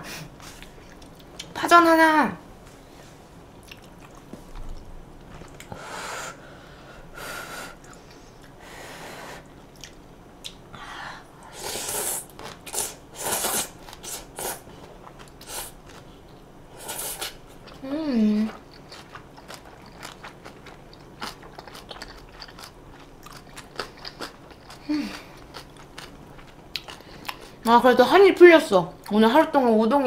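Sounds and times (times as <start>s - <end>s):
chewing with wet mouth clicks: 0.6s - 1.6s, 3.6s - 5.7s, 9.7s - 10.6s, 18.5s - 24.8s, 25.4s - 27.5s
noodle slurping: 11.5s - 14.6s.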